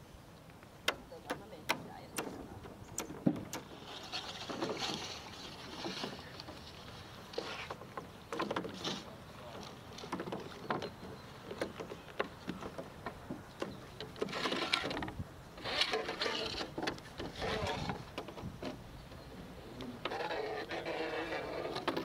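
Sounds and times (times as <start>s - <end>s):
oars knocking in oarlocks: 0.8s - 19.2s, 19.8s - 22.0s.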